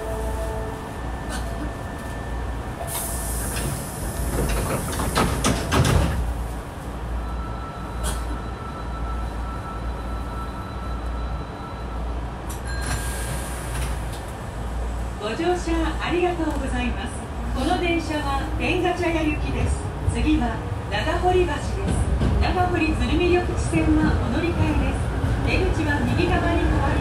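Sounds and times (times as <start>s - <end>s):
knocks and clatter: 4.3s - 6.2s.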